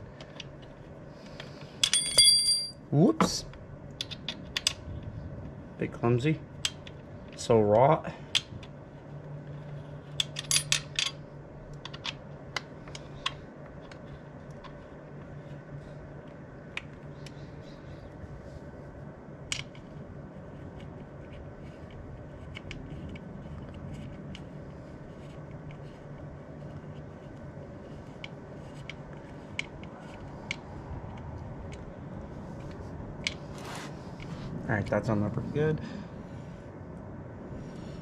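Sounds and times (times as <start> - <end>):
faint steady hum: 0.0 - 38.0.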